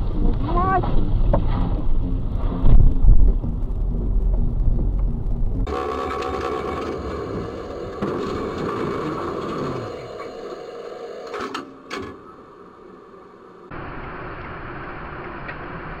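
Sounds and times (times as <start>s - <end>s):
low road rumble: 0.0s - 16.0s
tram running gear clattering: 5.7s - 12.4s.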